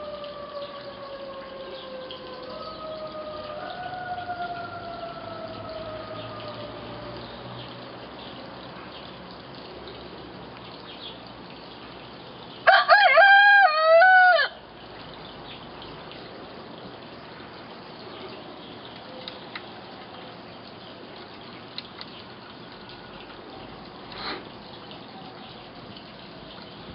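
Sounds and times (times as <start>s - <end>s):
hen crowing: 0.0s - 6.8s, 12.7s - 14.6s.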